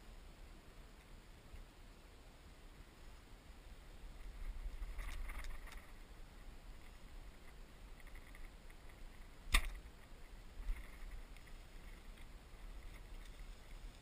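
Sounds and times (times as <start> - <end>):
bow string snap: 9.5 - 9.8.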